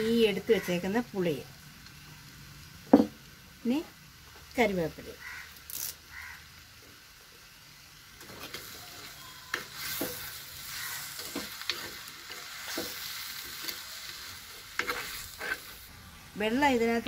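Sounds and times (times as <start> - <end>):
fish frying and sizzling in pot: 0.0 - 17.0
steel spoon scraping pot: 8.2 - 15.8.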